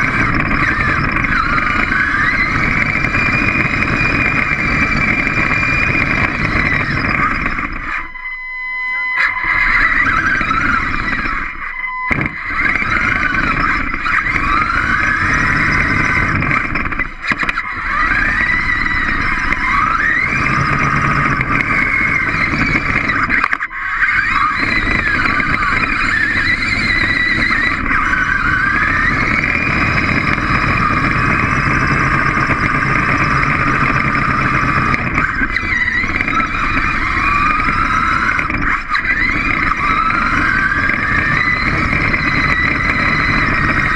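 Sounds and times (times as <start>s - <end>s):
robot motors and gears whining: 0.0s - 43.9s
steady mechanical rumble: 0.0s - 43.9s.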